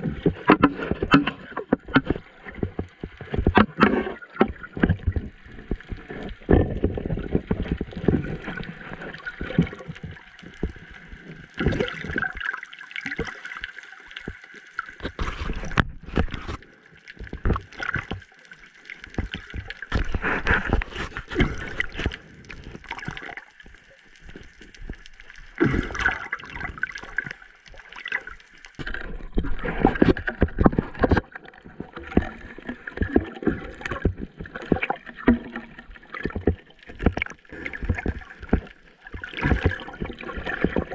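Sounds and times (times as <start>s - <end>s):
muffled knocks and crackles: 0.0s - 8.6s, 14.3s - 18.3s, 19.0s - 25.4s, 28.8s - 40.9s
water rushing underwater: 0.0s - 40.9s.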